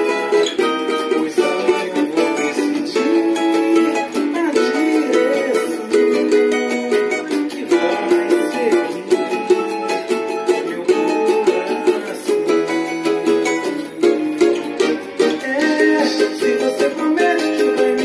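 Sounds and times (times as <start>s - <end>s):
cavaquinho picking a melody: 0.0s - 18.0s.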